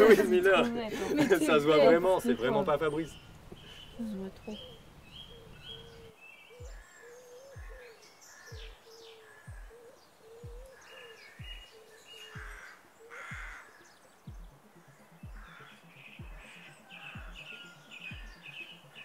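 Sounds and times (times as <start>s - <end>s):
birds chirping: 0.0s - 19.0s
deep pulsing thump: 6.6s - 6.8s, 8.5s - 8.8s, 14.3s - 14.6s.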